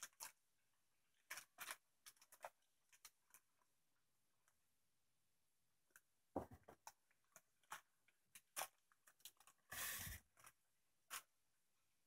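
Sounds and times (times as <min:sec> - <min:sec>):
plastic packaging crinkling: 0:00.0 - 0:00.5, 0:01.1 - 0:03.8, 0:06.7 - 0:11.4.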